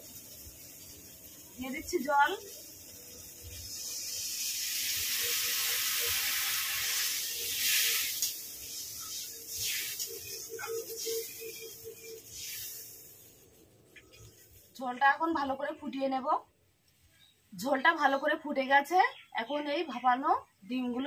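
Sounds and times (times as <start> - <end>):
water sizzling in hot oil: 0.0 - 15.7.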